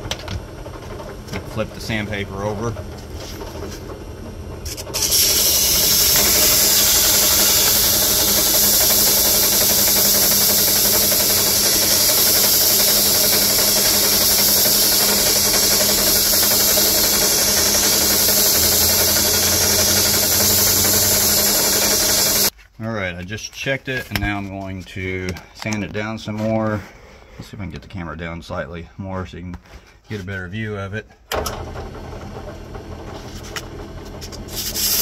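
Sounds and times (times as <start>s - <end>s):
drill press running: 0.0s - 22.5s, 31.3s - 35.0s
sandpaper hissing on spinning copper: 4.6s - 22.5s, 34.4s - 35.0s.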